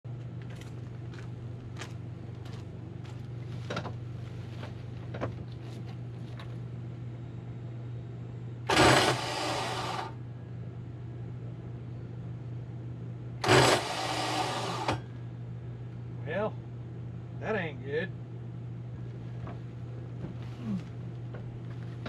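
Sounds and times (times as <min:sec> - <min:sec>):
steady low hum: 0:00.0 - 0:22.0
footsteps crunching on gravel: 0:00.2 - 0:06.6
engine starter grinding: 0:08.7 - 0:10.2, 0:13.4 - 0:15.0.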